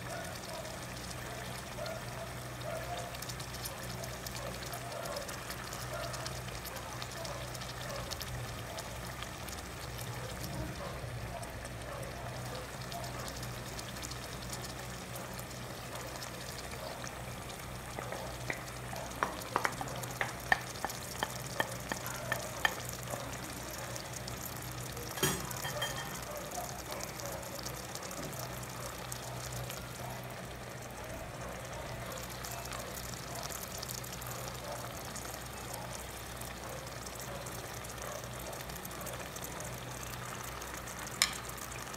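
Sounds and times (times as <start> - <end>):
meat sizzling in oil: 0.0 - 41.9
sharp clicks and taps: 17.9 - 22.9.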